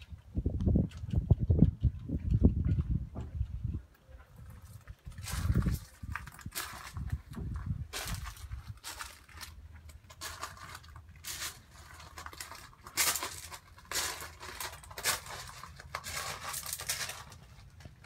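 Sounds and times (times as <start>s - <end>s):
footsteps on gravel: 4.4s - 18.0s.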